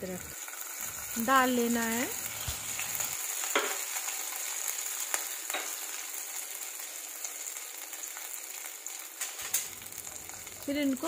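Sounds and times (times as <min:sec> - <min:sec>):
spices sizzling in hot oil: 0:00.0 - 0:11.0.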